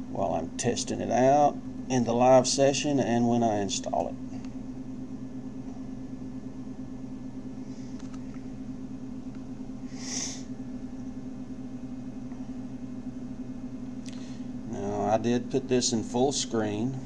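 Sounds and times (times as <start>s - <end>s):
room tone hum: 0.0s - 17.0s
short breathy hiss: 9.9s - 10.5s.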